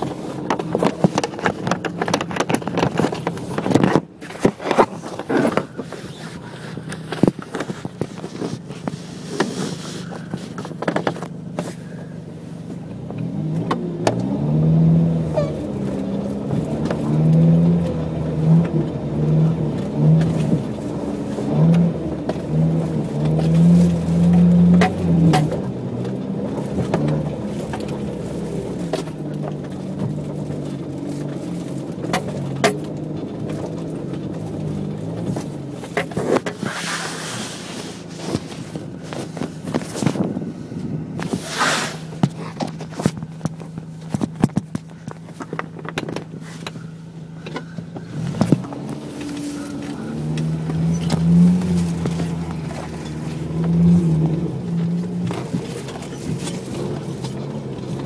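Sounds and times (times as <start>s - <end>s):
knocking and clatter on bumpy track: 0.0s - 9.0s, 42.2s - 46.8s
car engine revving: 0.0s - 58.0s.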